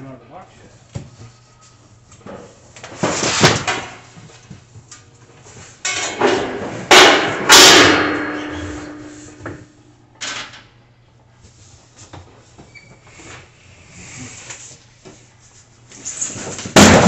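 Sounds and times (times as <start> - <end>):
grill parts clattering: 5.8 - 9.6.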